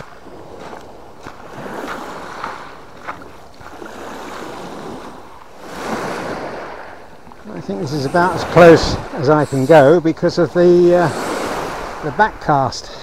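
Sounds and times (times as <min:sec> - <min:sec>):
footsteps crunching on shingle: 0:00.0 - 0:05.7
waves washing on pebble beach: 0:00.0 - 0:13.0.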